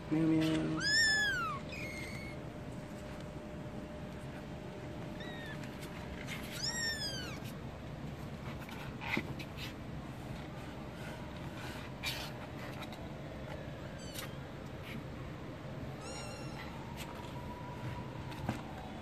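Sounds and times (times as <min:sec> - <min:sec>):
kittens mewing: 0:00.5 - 0:02.4, 0:05.1 - 0:07.6, 0:16.0 - 0:16.9.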